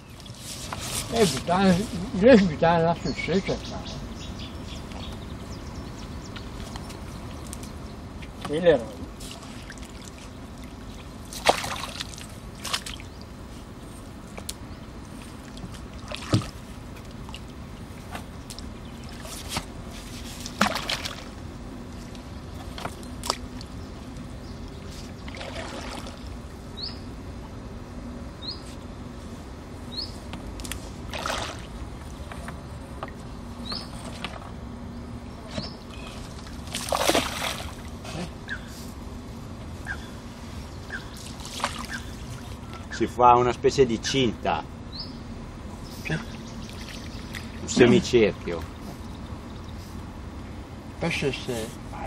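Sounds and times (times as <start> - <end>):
water splashing and sloshing: 0.0 - 2.6, 6.3 - 26.7, 30.2 - 43.0, 46.0 - 50.5
bird chirping: 2.8 - 8.2, 26.7 - 27.2, 28.4 - 28.7, 29.9 - 30.2, 33.6 - 34.1, 34.9 - 36.2, 38.4 - 38.7, 39.8 - 43.1, 44.9 - 48.0, 48.7 - 49.9.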